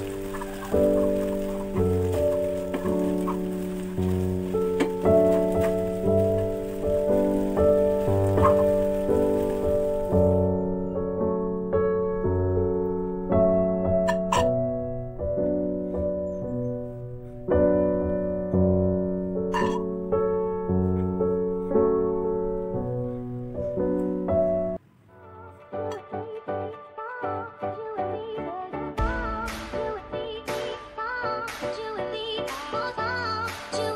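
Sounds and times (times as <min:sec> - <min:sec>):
gentle piano music: 0:00.0 - 0:33.9.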